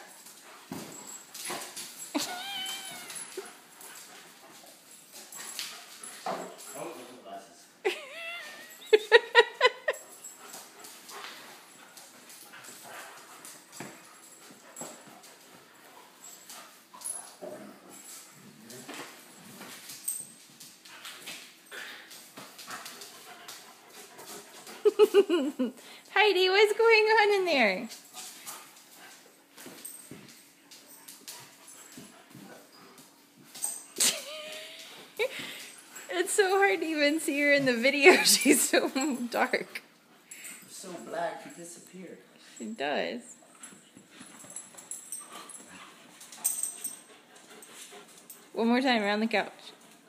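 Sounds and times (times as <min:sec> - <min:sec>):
dog paws clicking on wood floor: 0:00.0 - 0:07.4, 0:08.2 - 0:50.0
dog whining: 0:02.1 - 0:03.5, 0:07.9 - 0:09.0.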